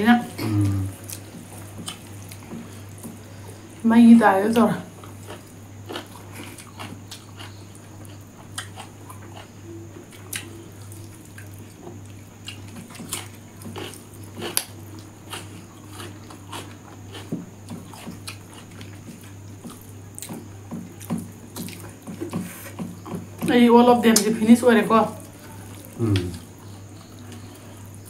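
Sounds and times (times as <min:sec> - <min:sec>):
steady low hum: 0:00.0 - 0:28.0
chewing and mouth smacks: 0:10.1 - 0:20.4, 0:21.0 - 0:23.3.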